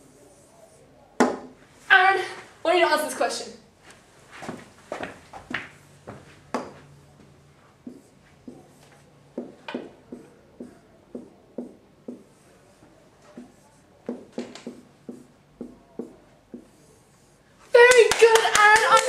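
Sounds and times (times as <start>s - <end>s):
marker writing on a whiteboard: 0.0s - 1.6s, 5.6s - 19.0s.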